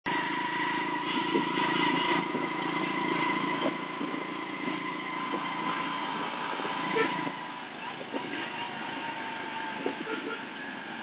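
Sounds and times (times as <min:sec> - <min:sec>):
motorcycle engine running: 0:00.1 - 0:11.0
steady high whine: 0:00.1 - 0:11.0.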